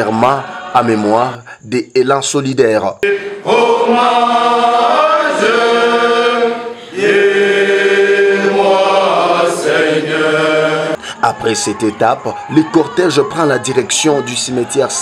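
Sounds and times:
group singing in unison: 0:00.0 - 0:01.4, 0:03.0 - 0:11.0.

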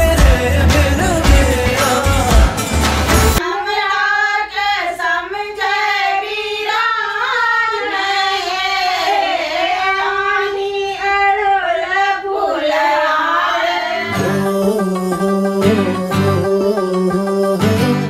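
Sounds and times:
pop song with heavy beat: 0:00.0 - 0:03.5, 0:14.0 - 0:18.0
woman singing unaccompanied: 0:03.4 - 0:16.4.

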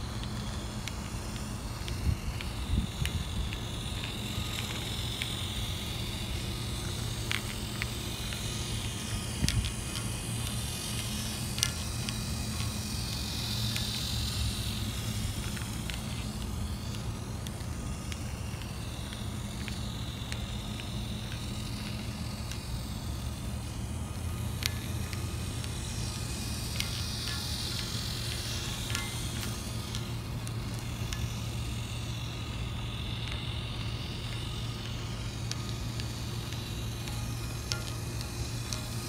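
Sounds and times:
toy train motor whir: 0:00.0 - 0:39.0.

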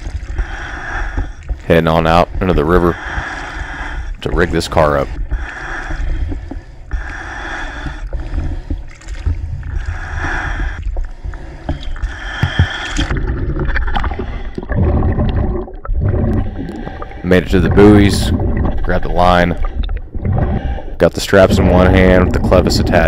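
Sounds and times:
river water sloshing and splashing: 0:00.0 - 0:00.4, 0:08.9 - 0:09.9
muffled underwater sound: 0:00.0 - 0:23.0.

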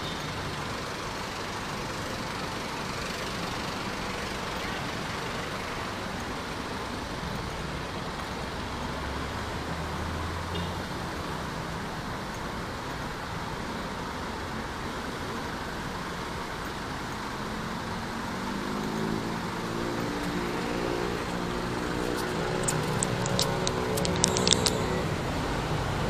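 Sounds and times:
passing vehicles rushing: 0:00.0 - 0:26.0
vehicle engine hum: 0:00.0 - 0:26.0.

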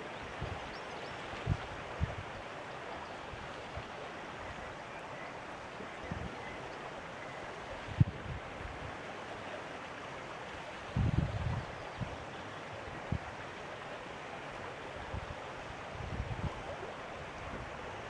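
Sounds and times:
wind buffeting microphone: 0:11.0 - 0:12.2, 0:16.0 - 0:17.8.

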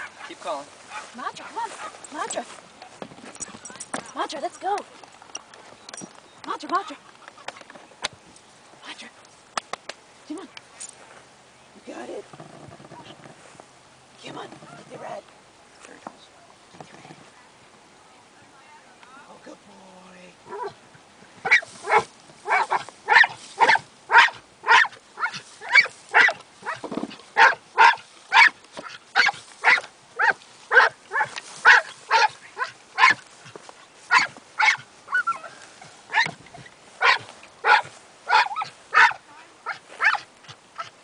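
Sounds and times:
dog barking rapidly: 0:21.4 - 0:26.8, 0:27.4 - 0:33.2, 0:34.1 - 0:35.5, 0:36.1 - 0:36.4, 0:37.0 - 0:41.0.

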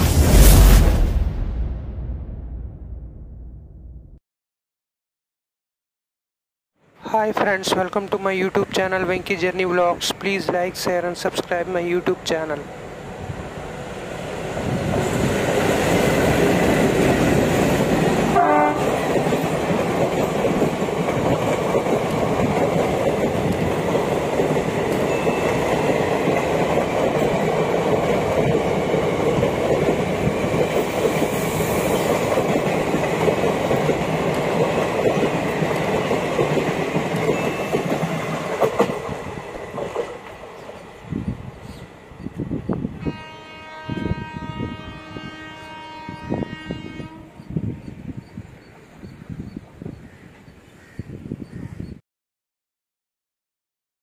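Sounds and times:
train wheels rumbling on track: 0:07.3 - 0:45.3
train horn blast: 0:18.3 - 0:19.1, 0:43.0 - 0:48.0.

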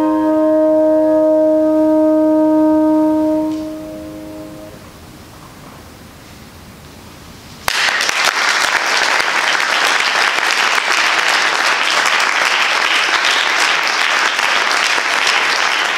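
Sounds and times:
audience applause: 0:07.7 - 0:15.9.

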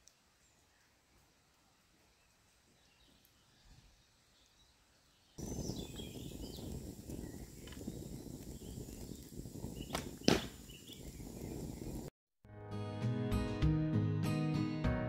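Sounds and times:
birds chirping: 0:00.0 - 0:12.1.

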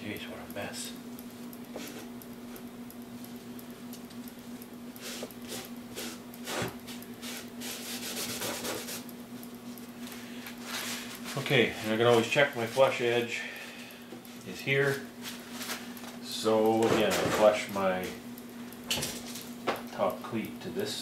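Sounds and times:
steady low hum: 0:00.0 - 0:21.0
cloth rag rubbing on wood: 0:07.2 - 0:09.0.

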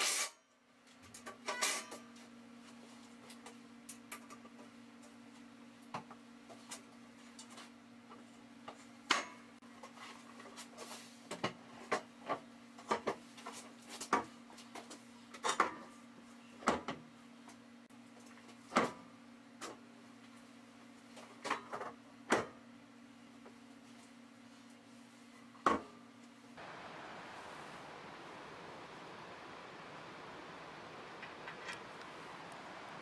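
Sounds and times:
steady low hum: 0:22.8 - 0:33.0.

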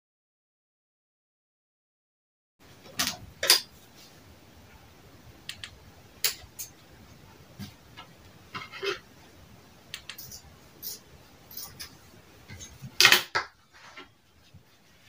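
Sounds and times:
light clicks and taps of tools: 0:09.9 - 0:12.0.

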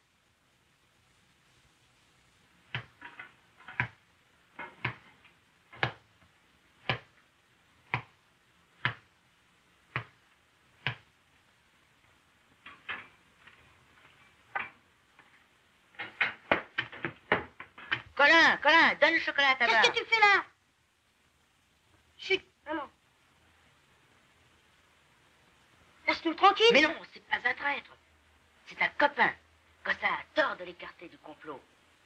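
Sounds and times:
sharp knocks and clicks: 0:02.7 - 0:06.1, 0:06.8 - 0:07.1, 0:07.9 - 0:08.2, 0:08.8 - 0:09.1, 0:15.9 - 0:18.2.

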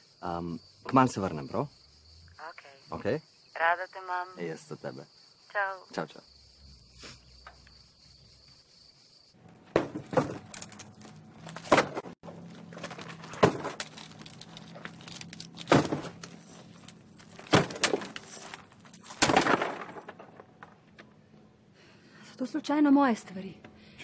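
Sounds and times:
objects crashing into a bin: 0:09.6 - 0:21.0.

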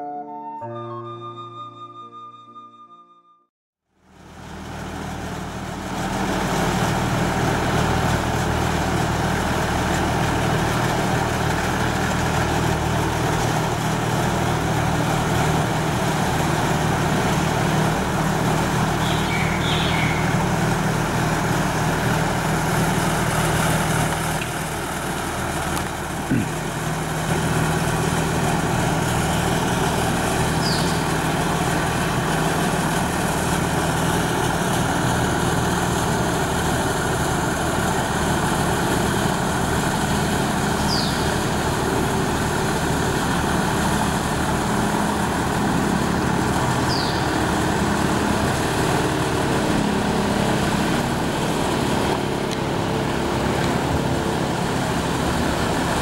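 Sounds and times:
engine humming: 0:04.1 - 0:56.0.

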